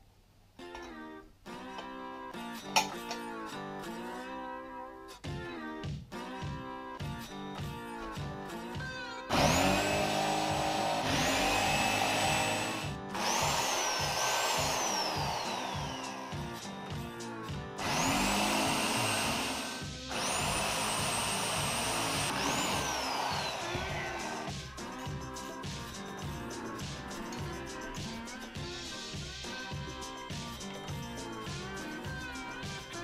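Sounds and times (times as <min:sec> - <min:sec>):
background music: 0:00.6 - 0:33.0
electric drill whining: 0:09.3 - 0:16.6, 0:17.8 - 0:24.5.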